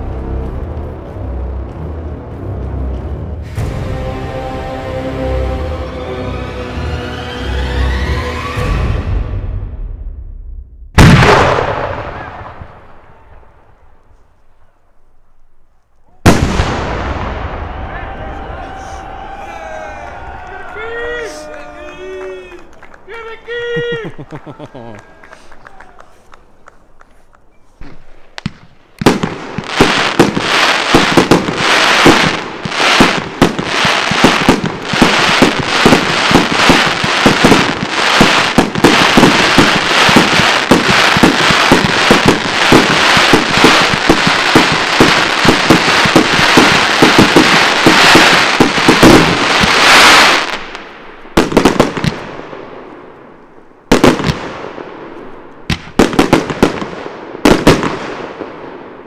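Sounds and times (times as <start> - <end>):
fireworks barrage: 10.9 - 14.0, 16.2 - 24.2, 27.8 - 59.0
single firework bangs: 27.8 - 50.7.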